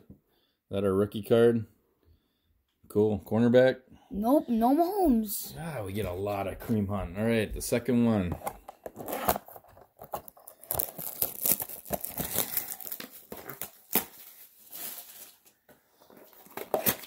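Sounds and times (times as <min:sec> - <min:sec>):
plastic wrapping crinkling and tearing: 0:09.0 - 0:17.0.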